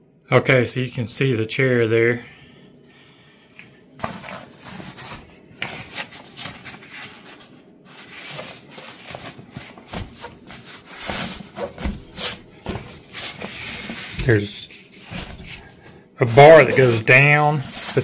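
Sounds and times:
dull thumps: 9.6 - 13.3
fabric seat rubbing and rustling: 16.4 - 18.0.

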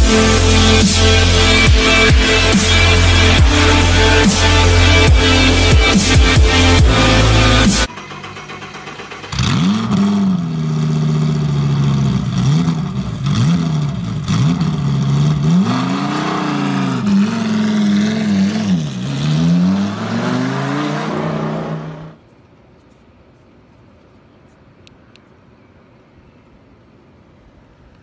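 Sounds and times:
car engine revving: 0.0 - 22.2.

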